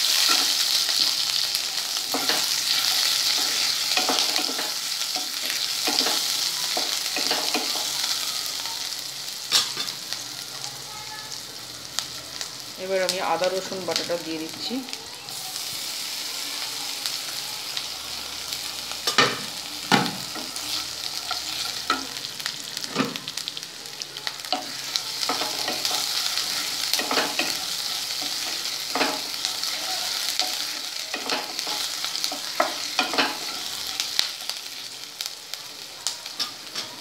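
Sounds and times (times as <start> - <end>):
food sizzling in hot oil: 0.0 - 37.0.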